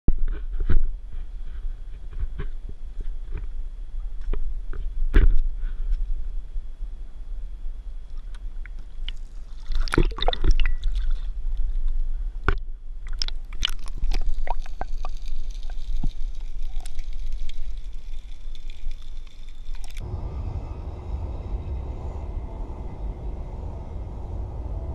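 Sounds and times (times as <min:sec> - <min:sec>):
muffled underwater rumble: 0:13.9 - 0:24.9
open-air rush: 0:19.9 - 0:24.9.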